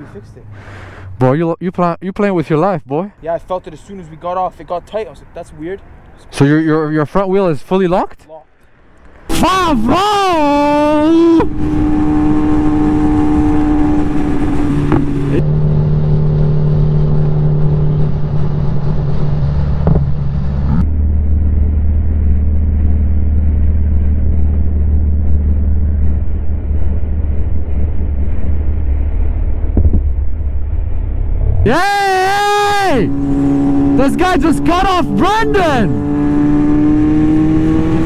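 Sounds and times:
motorcycle engine running: 11.3s - 28.2s.

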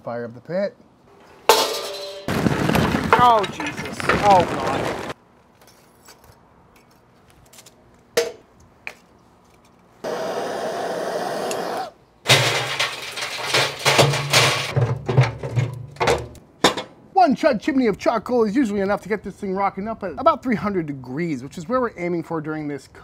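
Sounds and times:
coals clattering and crackling on metal: 1.1s - 7.8s, 12.3s - 16.9s
charcoal knocking into metal starter: 12.3s - 16.8s.

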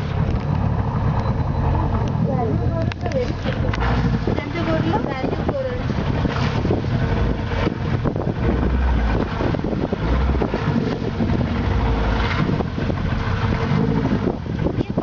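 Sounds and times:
boat motor running: 0.0s - 15.0s
wind buffeting microphone: 0.0s - 15.0s.

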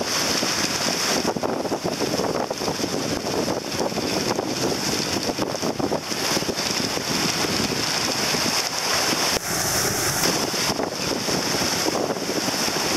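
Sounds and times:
wind buffeting microphone: 0.0s - 12.9s
waves and spray rushing: 6.0s - 12.9s.

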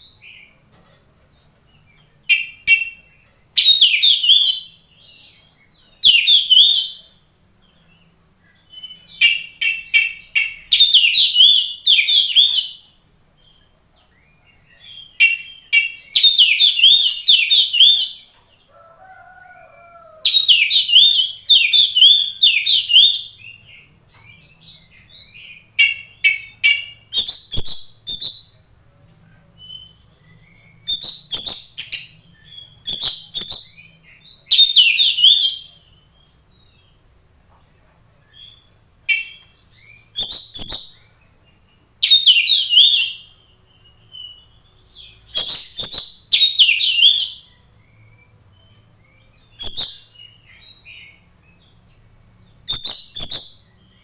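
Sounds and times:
bird warbling whistled song: 2.3s - 5.3s, 6.0s - 7.0s, 8.6s - 12.8s, 14.2s - 18.2s, 19.6s - 23.6s, 24.4s - 28.6s, 29.6s - 36.4s, 38.4s - 41.1s, 42.0s - 51.2s, 52.7s - 54.0s.

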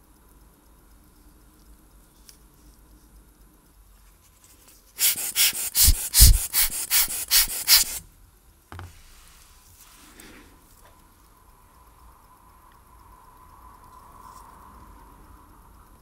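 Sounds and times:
air blower puffs: 5.0s - 8.0s
light knock: 8.7s - 9.0s.

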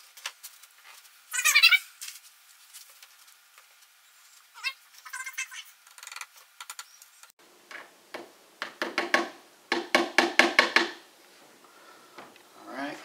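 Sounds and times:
hammer tapping nails: 8.6s - 11.0s.

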